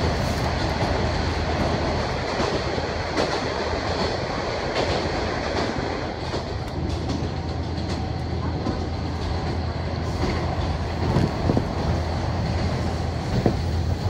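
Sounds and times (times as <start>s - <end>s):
rail-joint clacks: 0.0s - 14.0s
train engine hum: 0.0s - 14.0s.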